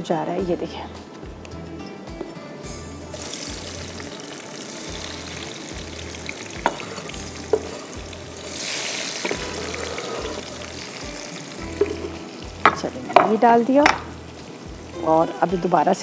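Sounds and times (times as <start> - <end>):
tomatoes sizzling in hot oil: 2.2 - 16.0.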